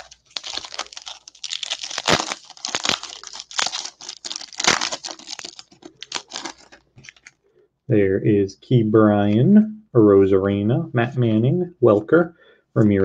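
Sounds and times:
foil wrapper tearing and crinkling: 0:00.0 - 0:07.4.

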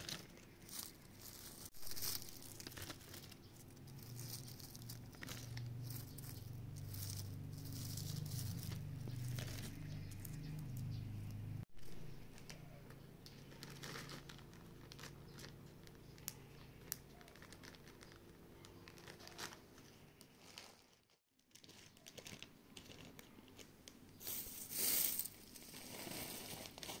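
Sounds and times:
plastic bags crinkling: 0:00.0 - 0:10.4, 0:11.8 - 0:27.0
dry buds pouring ticks: 0:00.0 - 0:19.5.

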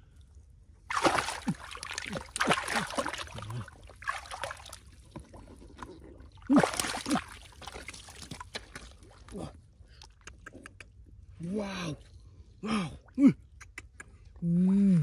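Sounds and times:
hands splashing in shallow water: 0:00.9 - 0:05.0, 0:06.5 - 0:09.3.

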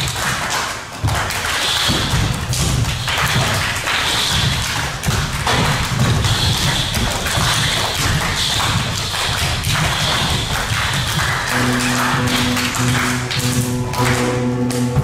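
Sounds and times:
stamping on wooden stage: 0:01.0 - 0:12.8.

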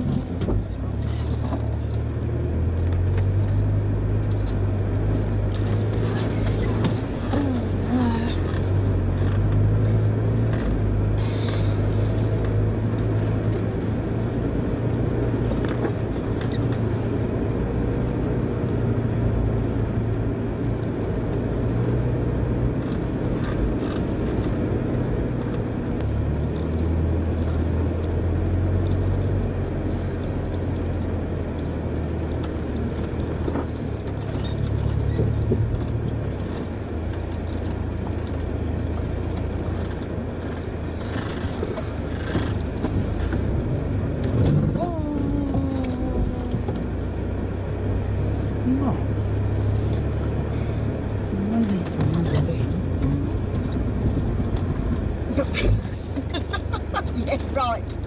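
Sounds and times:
vehicle knocks and rattles: 0:00.0 - 0:11.6, 0:28.5 - 0:48.1, 0:49.6 - 0:58.0
vehicle engine droning: 0:00.0 - 0:58.0.

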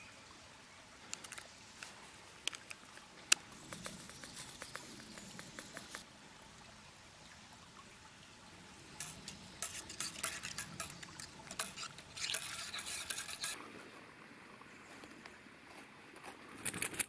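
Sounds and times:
metal spoon clinking in a pot: 0:09.0 - 0:13.6.

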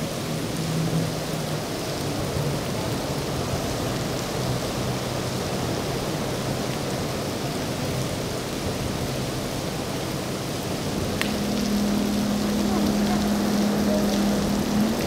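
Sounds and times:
heavy rain hissing: 0:00.0 - 0:15.0
faint low boat engine drone: 0:08.7 - 0:15.0.

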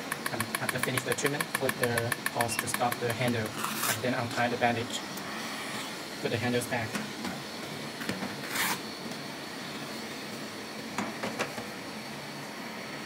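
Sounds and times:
machine fan hum: 0:00.0 - 0:13.0.

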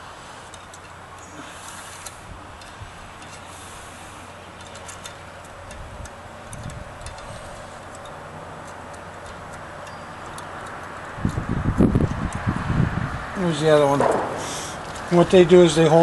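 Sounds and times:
steady background hiss: 0:00.0 - 0:16.0
small metallic clicks: 0:00.4 - 0:12.6.

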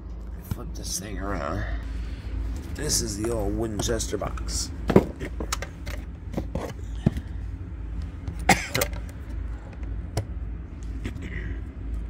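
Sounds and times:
low steady hum: 0:00.0 - 0:12.0
objects being handled: 0:02.5 - 0:07.3
breathy cough: 0:08.4 - 0:08.9.

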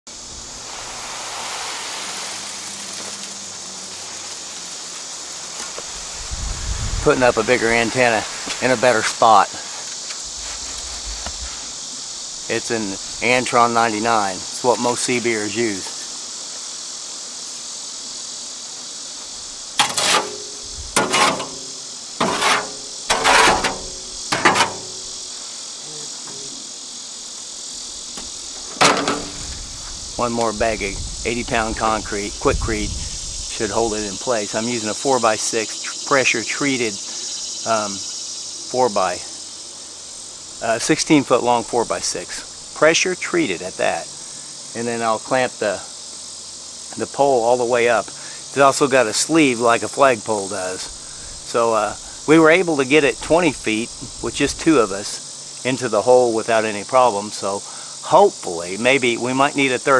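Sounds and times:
high-pitched outdoor hiss: 0:00.0 - 0:59.9
insects buzzing: 0:00.0 - 0:59.9
wet concrete scraping from wheelbarrow: 0:00.4 - 0:04.5, 0:07.0 - 0:11.8, 0:22.2 - 0:24.8.

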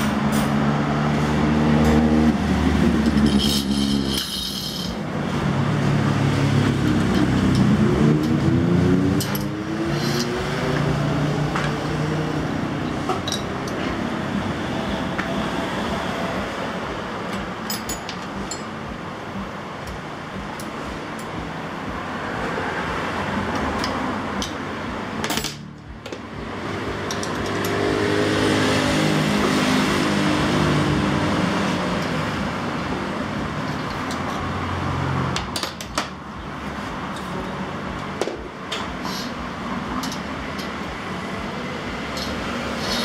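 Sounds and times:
passing vehicle engine: 0:00.0 - 0:17.6, 0:20.8 - 0:35.6, 0:36.2 - 0:43.0
traffic hum: 0:00.0 - 0:43.0
metal tool clinks: 0:03.1 - 0:05.0.

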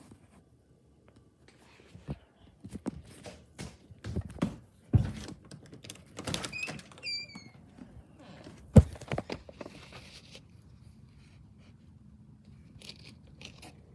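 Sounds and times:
footsteps: 0:01.5 - 0:05.6
high falling squeaks: 0:06.3 - 0:07.7.

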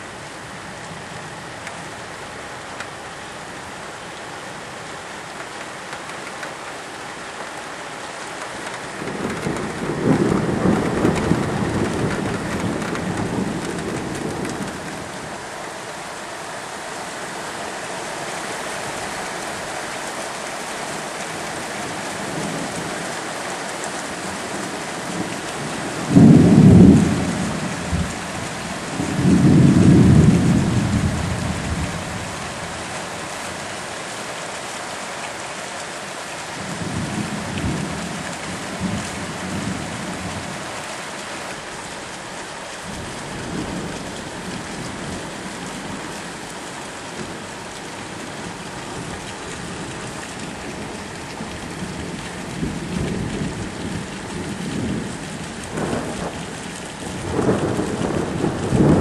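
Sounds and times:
steady rain: 0:00.0 - 0:59.0
thunder rumbling: 0:08.7 - 0:15.5, 0:24.1 - 0:32.9, 0:47.2 - 0:59.0
thunder clap: 0:08.9 - 0:15.2, 0:51.8 - 0:59.0.

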